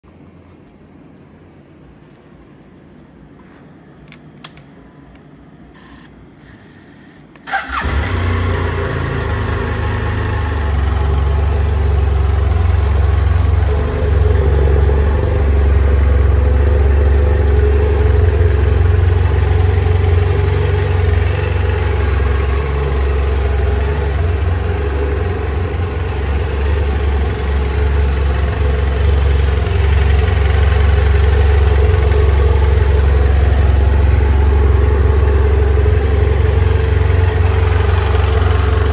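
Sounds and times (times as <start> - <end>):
motorcycle engine starting and idling: 7.4 - 38.9.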